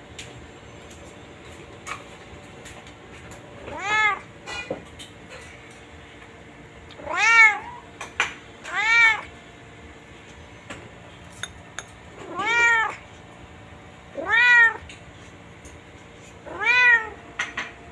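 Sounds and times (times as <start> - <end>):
cat meowing: 3.6 - 4.3, 7.0 - 7.8, 8.6 - 9.3, 12.2 - 13.0, 14.1 - 14.9, 16.4 - 17.2.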